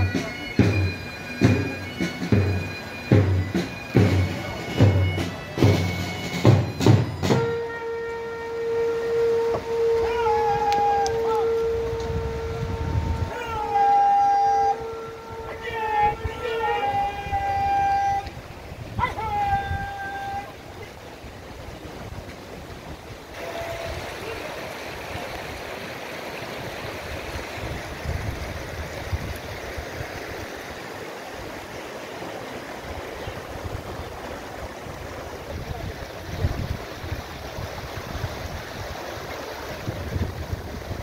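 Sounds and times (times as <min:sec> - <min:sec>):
river rushing over stones: 0:00.0 - 0:14.3, 0:14.9 - 0:41.0
wind buffeting microphone: 0:09.6 - 0:13.8, 0:14.7 - 0:25.8, 0:26.5 - 0:30.6, 0:32.7 - 0:41.0.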